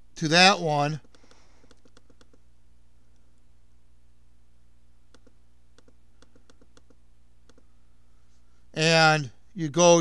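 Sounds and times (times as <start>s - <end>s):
faint low hum: 0.0s - 10.0s
mouse scroll wheel clicking: 1.0s - 2.4s, 5.1s - 7.6s.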